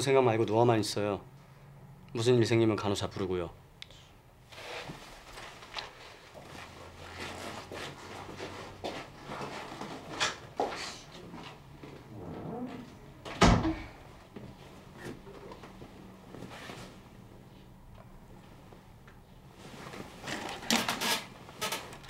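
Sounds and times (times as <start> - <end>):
fabric rustling: 4.5 - 10.2, 19.5 - 20.5
soft footsteps: 4.7 - 13.0
door shutting thump: 13.3 - 13.9.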